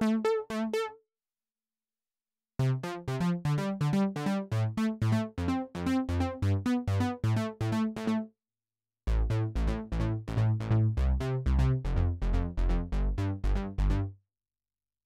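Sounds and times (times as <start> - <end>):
plucky synth bass notes: 2.8 - 8.2, 9.1 - 14.1
deeper synth bass line: 9.1 - 14.1.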